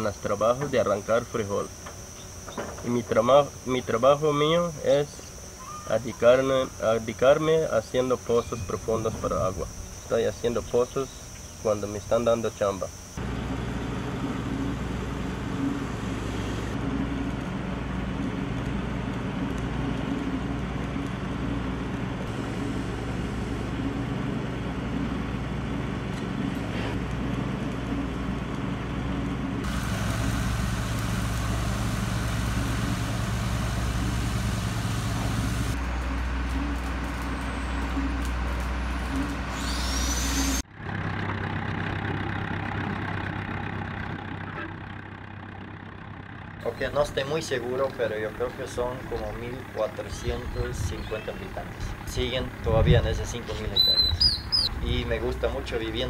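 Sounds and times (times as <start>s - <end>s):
machinery humming: 0.0s - 56.0s
tractor driving by: 13.2s - 56.0s.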